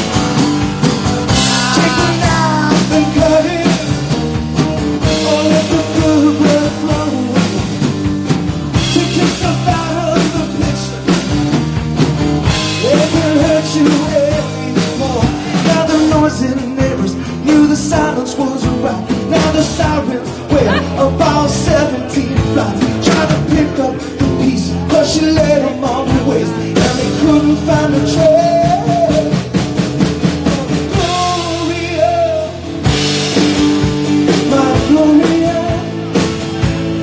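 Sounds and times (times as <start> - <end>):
drum hits: 0.0 - 17.0
acoustic guitar: 0.0 - 37.0
electric bass: 0.0 - 37.0
man singing: 1.2 - 11.6, 12.5 - 37.0.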